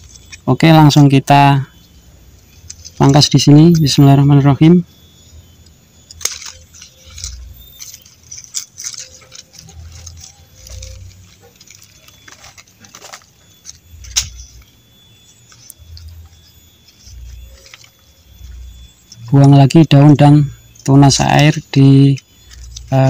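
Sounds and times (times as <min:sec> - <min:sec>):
leaves rustling: 0:00.0 - 0:23.0
pruning shears snipping: 0:06.0 - 0:14.7.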